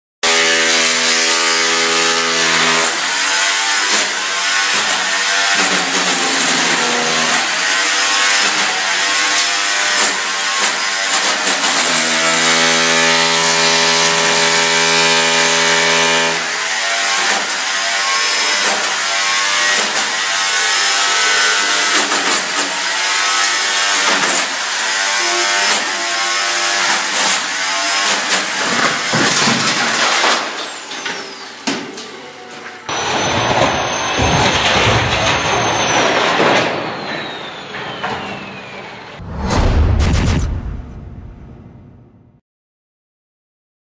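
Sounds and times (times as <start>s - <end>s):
power tool cutting concrete: 0.2s - 31.6s.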